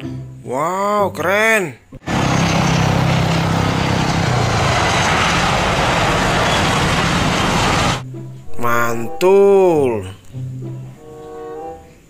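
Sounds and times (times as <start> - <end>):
jet engine and rushing air: 2.0 - 8.0
low hum: 2.0 - 9.2
faint high whine: 2.1 - 9.8.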